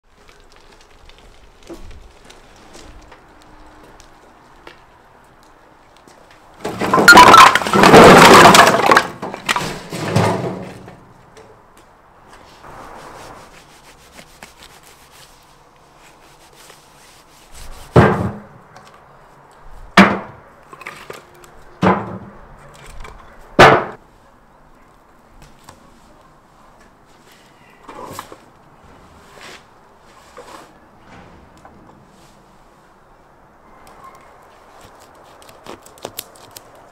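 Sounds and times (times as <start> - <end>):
logs clattering from wheelbarrow: 6.3 - 11.6, 17.9 - 19.0, 20.0 - 24.0
sharp knocks: 23.6 - 24.0.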